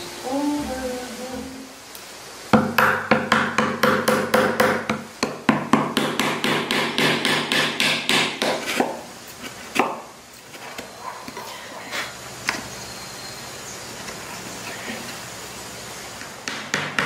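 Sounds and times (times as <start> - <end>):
mallet tapping chisel into wood: 2.6 - 8.9.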